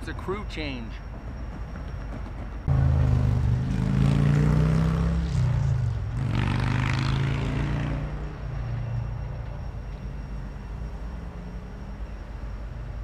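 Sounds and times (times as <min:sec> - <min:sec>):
diesel locomotive engine droning: 0:00.0 - 0:13.0.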